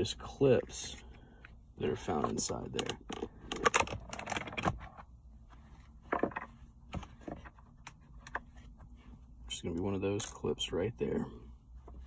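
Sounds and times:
plastic parts clicking and rattling: 2.2s - 4.9s.

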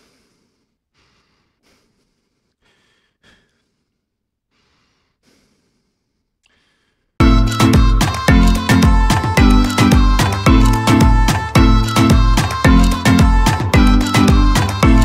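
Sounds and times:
loud music with string melody: 7.2s - 15.0s.

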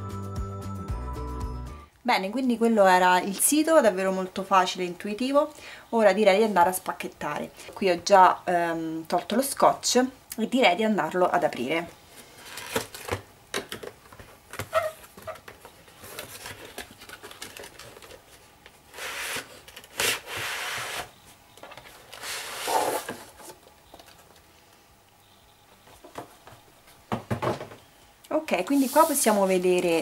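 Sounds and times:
box scraping out of cardboard sleeve: 18.9s - 21.1s, 22.2s - 23.5s, 28.7s - 29.4s.

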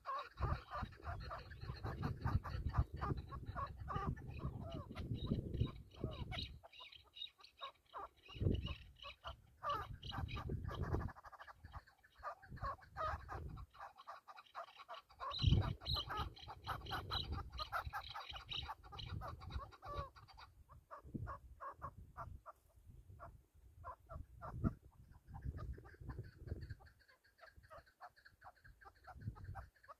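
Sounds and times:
partridge calling: 0.0s - 29.9s
wind buffeting microphone: 0.4s - 6.7s, 8.3s - 9.0s, 9.7s - 11.1s, 12.4s - 13.7s, 15.3s - 20.1s, 21.0s - 26.9s, 29.1s - 29.7s.

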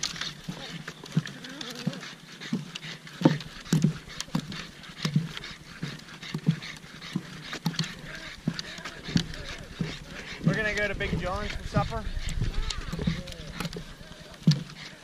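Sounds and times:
dog panting: 0.0s - 15.0s
footsteps on wooden boards: 0.0s - 15.0s.

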